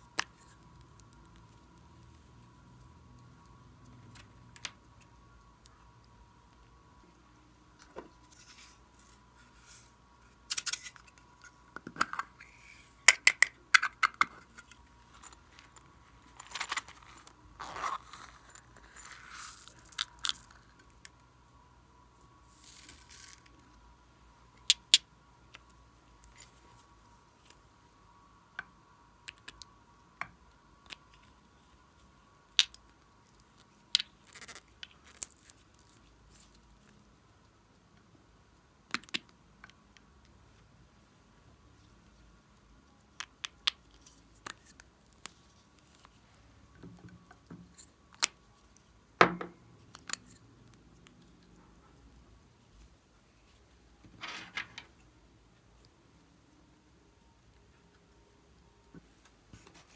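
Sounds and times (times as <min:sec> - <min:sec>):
sequins and beads rustling: 0:08.1 - 0:11.7, 0:14.4 - 0:21.1, 0:22.2 - 0:23.9, 0:30.8 - 0:37.1.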